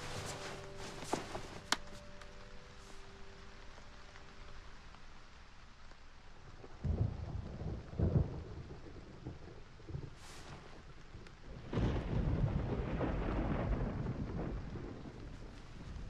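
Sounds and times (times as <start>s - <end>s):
rain against a window: 0.0s - 16.0s
thunder rumbling: 6.4s - 16.0s.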